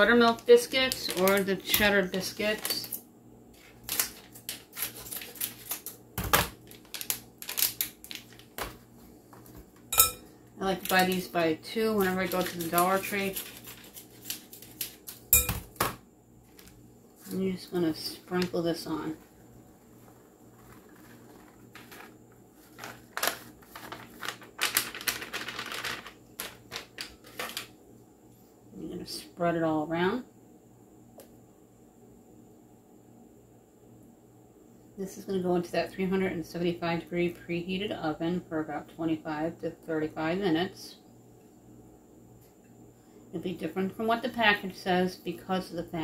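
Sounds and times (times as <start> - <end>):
plastic pouch crinkling: 3.5 - 8.8, 11.9 - 15.3, 19.8 - 27.7.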